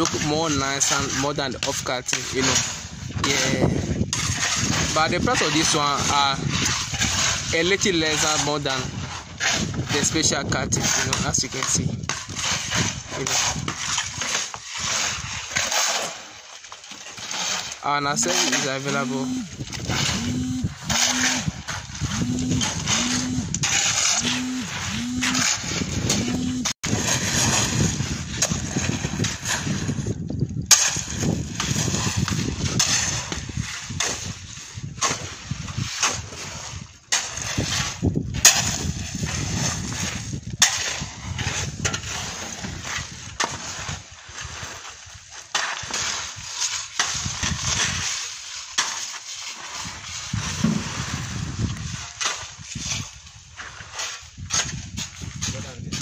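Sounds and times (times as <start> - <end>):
wind buffeting microphone: 1.2 - 15.5, 19.4 - 44.0, 49.8 - 53.4, 54.3 - 56.0.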